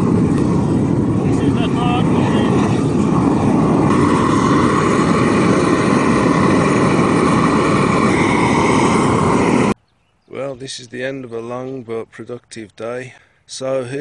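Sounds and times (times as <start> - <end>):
torch flame rushing: 0.0 - 9.8.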